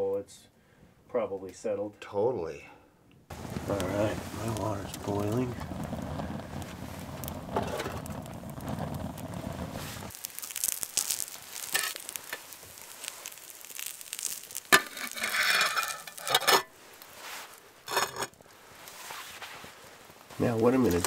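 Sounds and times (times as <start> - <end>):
biscuits sizzling in a pan: 3.3 - 21.0
wood fire crackling: 3.3 - 21.0.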